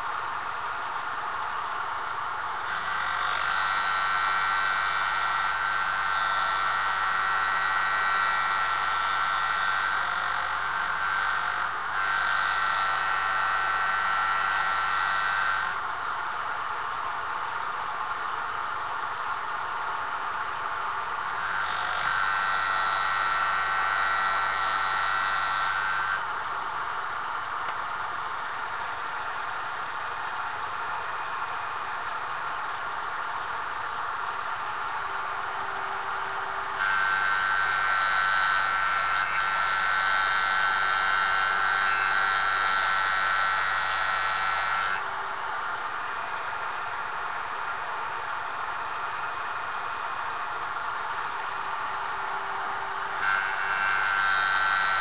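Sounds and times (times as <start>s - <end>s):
tool grinding on abrasive: 2.7s - 15.9s, 21.2s - 26.3s, 36.7s - 45.1s, 53.1s - 55.0s.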